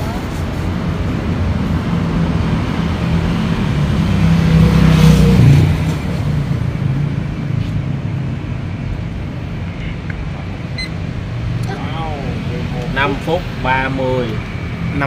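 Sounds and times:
motor vehicle passing by: 0.0s - 8.5s.

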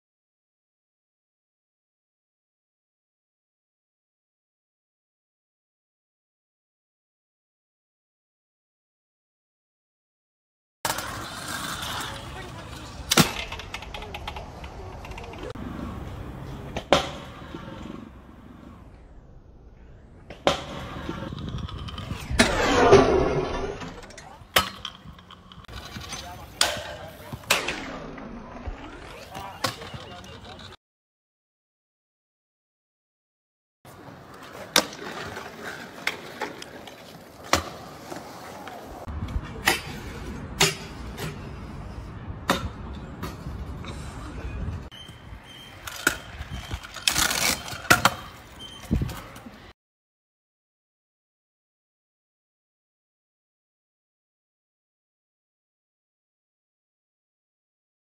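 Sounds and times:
wheels rolling clicks: 10.9s - 16.6s, 21.0s - 22.2s, 23.8s - 27.1s, 33.9s - 39.4s, 45.0s - 49.7s
low rumble: 21.9s - 24.2s
scooter landing on concrete: 37.4s - 38.2s
scooter hitting metal rail: 40.6s - 41.4s.

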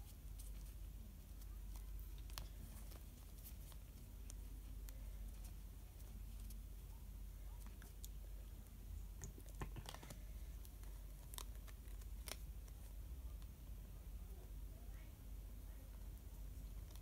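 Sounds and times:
cards clicking and snapping: 9.2s - 12.8s.

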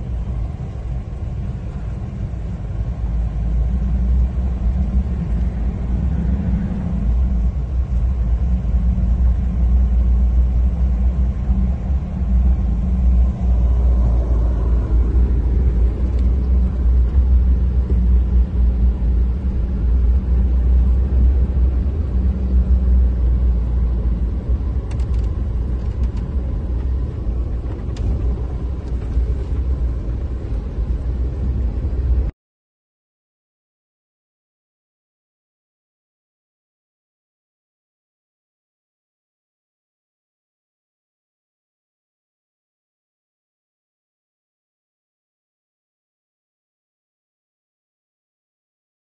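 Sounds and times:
car interior road rumble: 0.0s - 32.3s.

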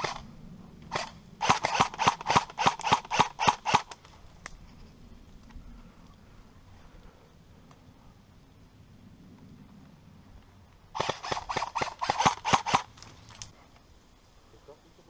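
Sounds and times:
airsoft rifle shots: 0.9s - 4.0s, 11.0s - 12.9s.

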